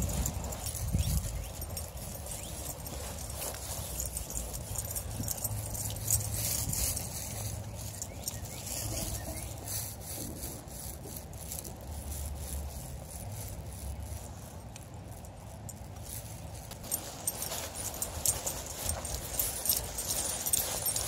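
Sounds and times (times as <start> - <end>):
footsteps: 0.0 - 14.8, 16.0 - 21.0
dog collar tags jingling: 0.0 - 21.0.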